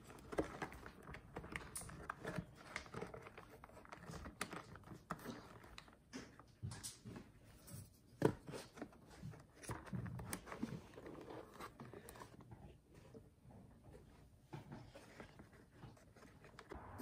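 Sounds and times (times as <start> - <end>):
plastic handling clicks and knocks: 0.0 - 13.1.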